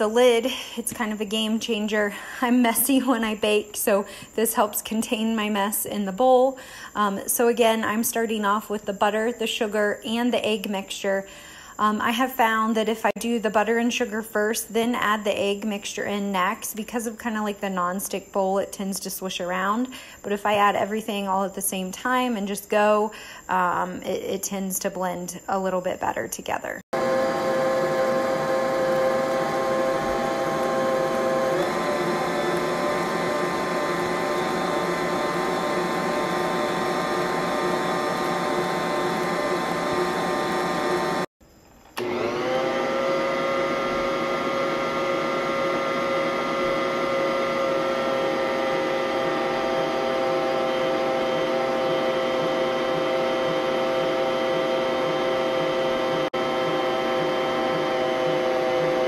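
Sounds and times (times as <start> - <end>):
stand mixer motor whining: 27.0 - 41.3, 42.0 - 59.0.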